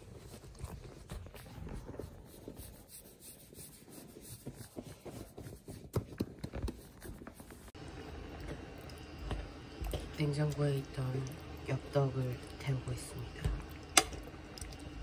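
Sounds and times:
soft rubbing and scraping: 0:00.0 - 0:07.8.

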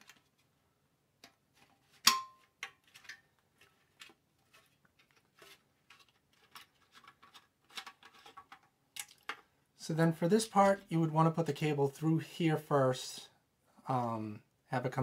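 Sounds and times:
plastic parts clicking and knocking: 0:01.2 - 0:09.5.

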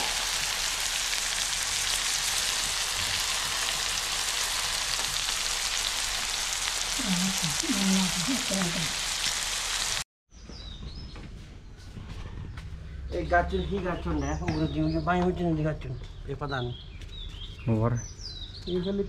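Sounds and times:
food sizzling in frying pan: 0:00.0 - 0:10.0
person speaking: 0:07.0 - 0:09.0.

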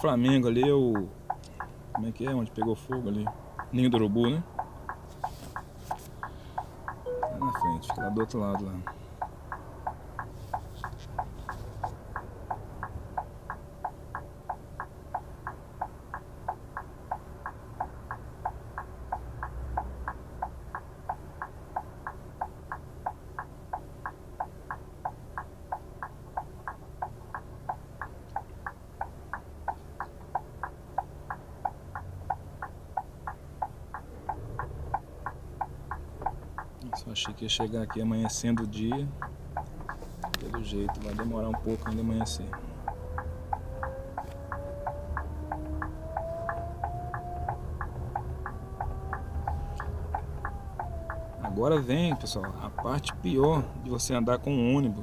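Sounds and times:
turn signal ticking: 0:00.0 - 0:55.0
bus engine idling: 0:21.0 - 0:43.6.

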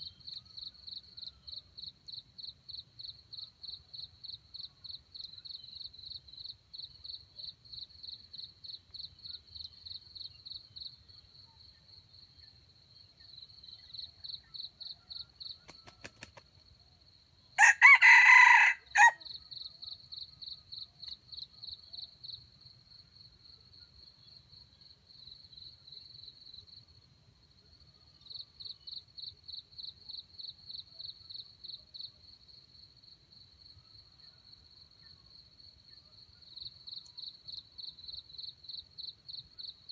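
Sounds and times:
rooster crowing: 0:17.6 - 0:19.3.

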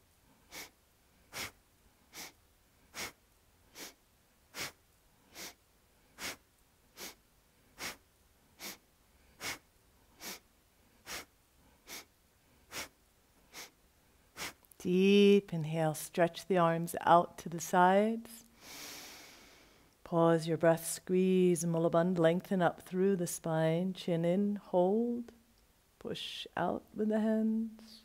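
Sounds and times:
person breathing sharply: 0:00.5 - 0:06.4, 0:07.0 - 0:07.2, 0:07.8 - 0:08.0, 0:08.6 - 0:10.4, 0:11.0 - 0:14.6, 0:18.5 - 0:19.9.

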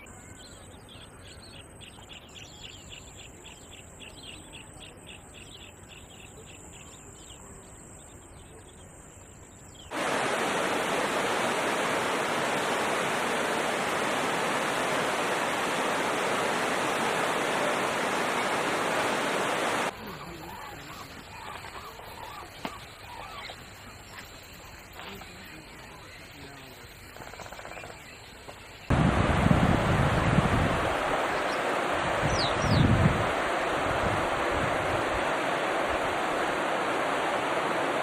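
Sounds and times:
fast-flowing river rushing: 0:09.9 - 0:19.9, 0:28.9 - 0:38.0.

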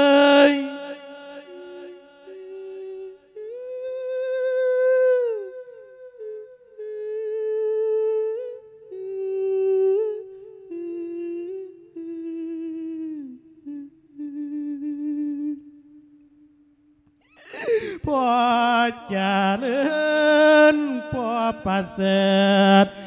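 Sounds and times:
monk chanting with vibrato: 0:00.0 - 0:04.4, 0:17.4 - 0:23.0.

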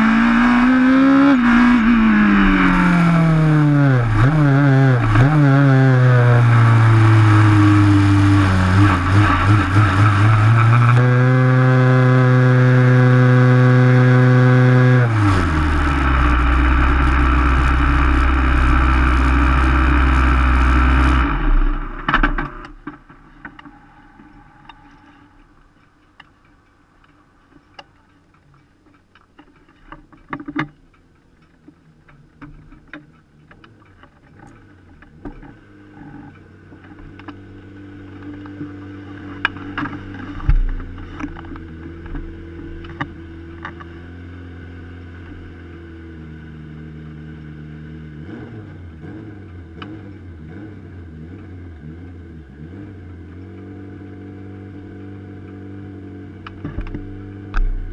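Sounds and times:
race car engine running: 0:00.0 - 0:25.8, 0:54.7 - 0:57.9.

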